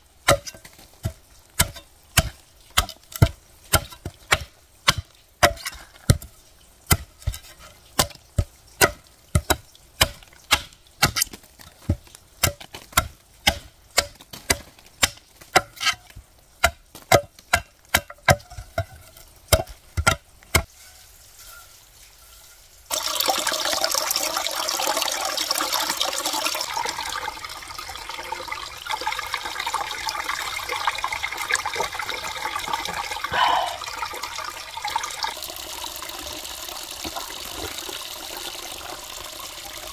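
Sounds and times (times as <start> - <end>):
wood being chopped: 0.3 - 6.3, 8.0 - 20.7.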